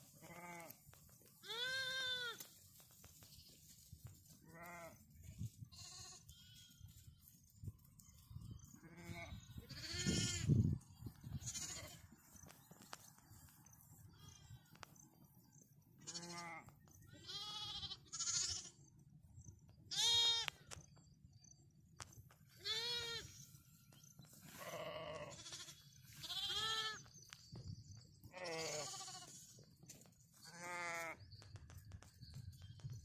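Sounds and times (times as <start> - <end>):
lamb bleating: 0.2 - 0.7, 1.4 - 2.4, 4.5 - 5.0, 5.7 - 6.7, 8.8 - 10.5, 11.4 - 12.0, 16.0 - 16.6, 17.2 - 18.7, 19.9 - 20.5, 22.6 - 23.3, 24.6 - 27.0, 28.3 - 29.5, 30.5 - 31.2.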